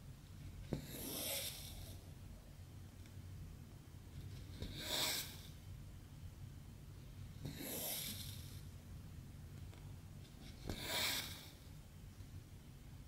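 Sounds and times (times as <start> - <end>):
thread rasping through fabric: 0.5 - 2.0.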